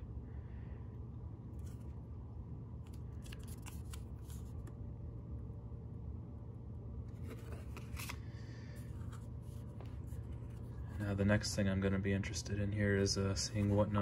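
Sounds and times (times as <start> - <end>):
low steady hum: 0.0 - 14.0
card rustling and scraping: 1.5 - 2.0, 2.8 - 4.8, 7.1 - 11.1, 13.4 - 14.0.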